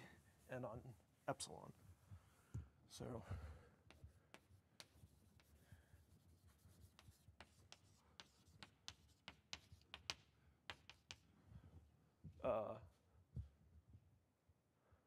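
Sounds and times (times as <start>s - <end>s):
chalk tapping and scraping: 3.8s - 11.3s.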